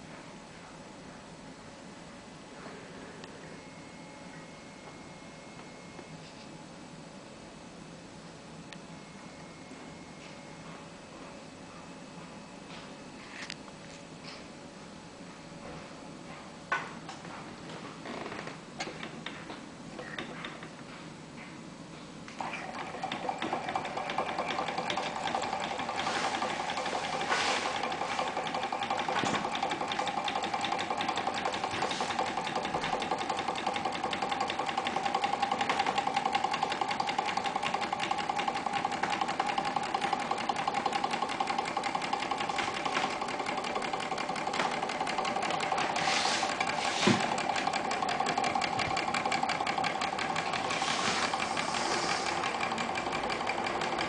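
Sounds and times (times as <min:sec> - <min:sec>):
model engine mechanical rattle: 0:22.8 - 0:54.0.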